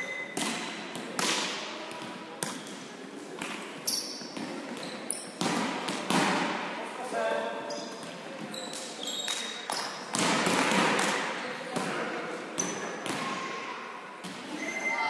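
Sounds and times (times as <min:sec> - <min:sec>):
shoe squeaks: 0:00.0 - 0:00.4, 0:03.8 - 0:05.4, 0:07.6 - 0:10.0, 0:14.5 - 0:15.0
volleyballs smacking hall floor: 0:00.3 - 0:06.7, 0:08.0 - 0:13.5.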